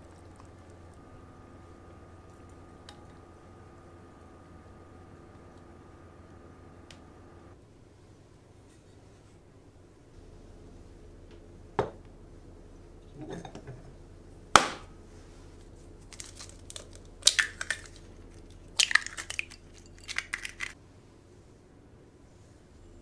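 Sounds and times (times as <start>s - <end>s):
eggshells crackling: 16.0s - 20.8s.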